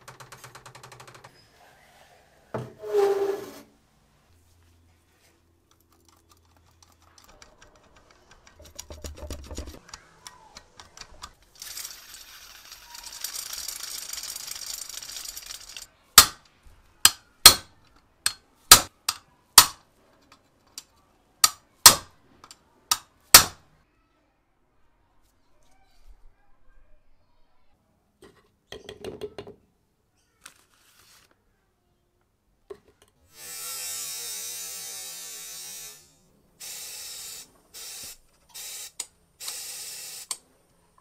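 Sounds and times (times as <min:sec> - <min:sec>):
faint hiss of spinning wheel: 0:11.6 - 0:15.9.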